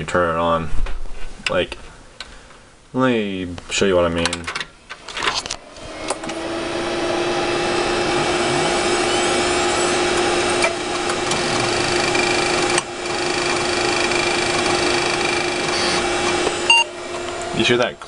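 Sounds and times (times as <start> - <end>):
computer fan hum: 5.0 - 18.0
hard drive spinning whine: 5.6 - 18.0
hard drive clicks: 10.1 - 17.5.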